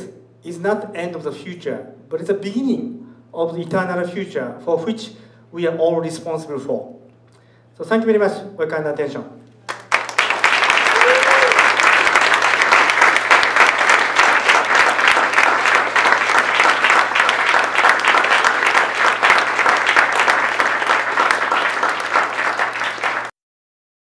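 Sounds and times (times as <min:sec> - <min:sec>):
audience applauding: 0:09.7 - 0:23.3.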